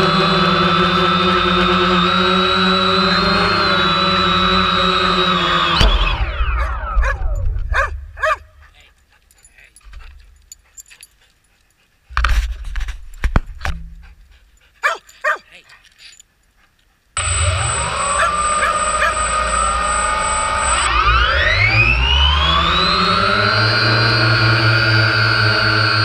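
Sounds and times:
drone motors whining: 0.0 - 8.6, 17.2 - 26.0
dog whimpering yips: 6.6 - 8.5.

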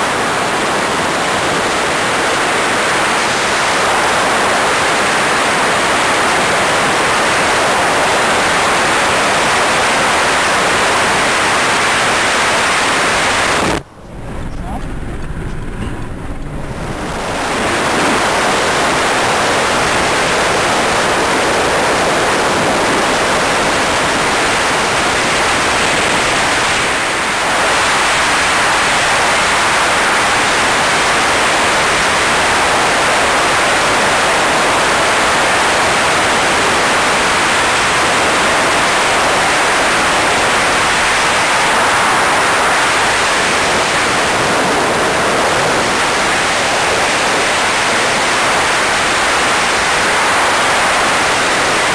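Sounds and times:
wind rushing over microphone: 0.0 - 51.9
road noise: 10.8 - 31.0.

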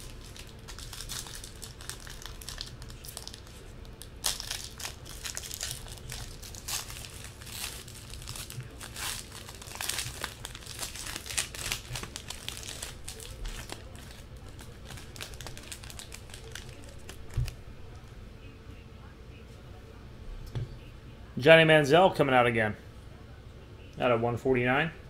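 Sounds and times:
card pack wrapper crinkling and tearing: 0.0 - 17.6.

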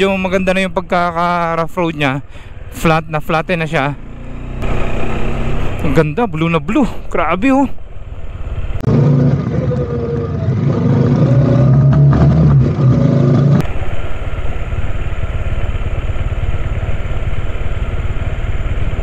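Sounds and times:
motorcycle engine running: 3.9 - 6.1, 7.7 - 19.0.

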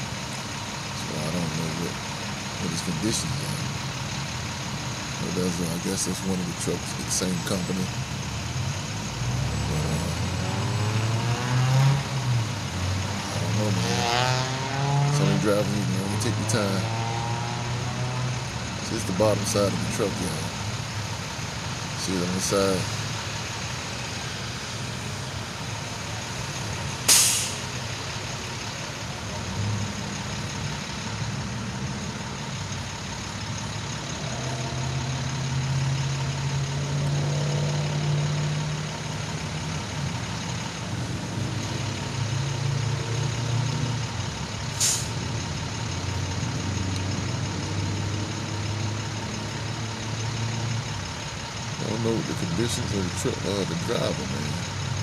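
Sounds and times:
heavy vehicles idling: 0.0 - 55.0
air brake hisses: 27.1 - 27.7, 44.8 - 45.1.

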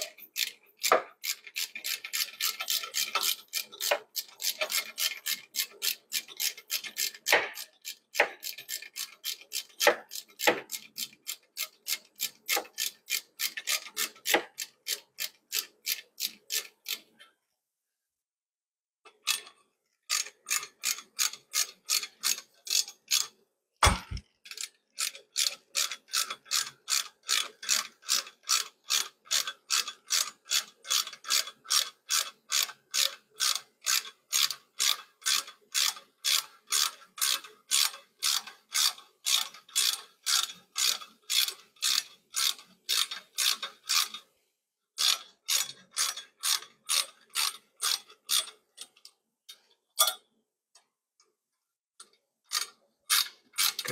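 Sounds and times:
hand ratchet clicking: 0.0 - 17.1, 19.2 - 44.2.

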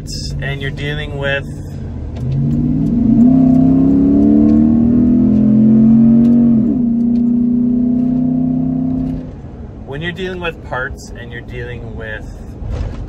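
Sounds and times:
truck engine accelerating: 0.0 - 9.6.

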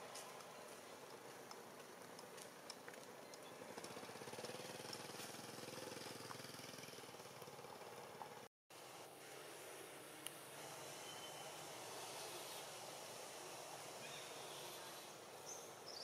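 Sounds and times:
faint engine running: 0.4 - 8.5
background hiss: 4.0 - 16.0.

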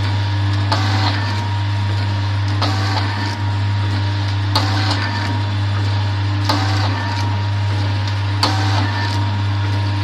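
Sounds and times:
packaging machine humming: 0.0 - 10.0.

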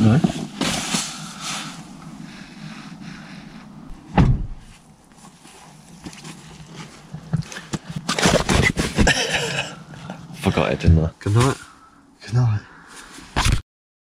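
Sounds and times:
sleeping bag rustling against fabric: 0.0 - 9.0
loud thump: 3.9 - 4.7.

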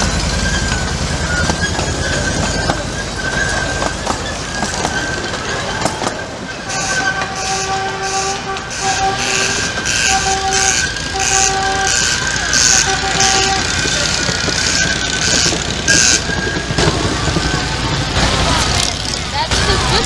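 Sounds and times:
miniature train chuffing: 0.0 - 20.0
train whistle toot: 6.6 - 16.5.

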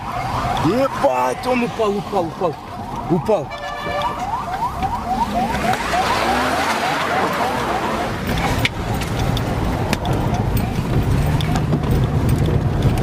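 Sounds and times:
electronic siren yelping: 0.0 - 8.3
vehicle road noise: 0.0 - 13.0.

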